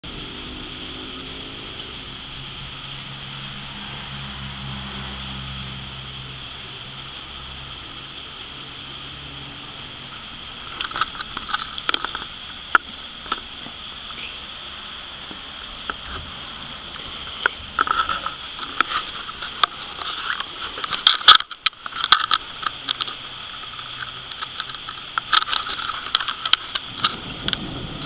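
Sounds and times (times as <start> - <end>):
low engine-like hum: 0.0 - 21.0
steady outdoor hiss: 0.0 - 28.0.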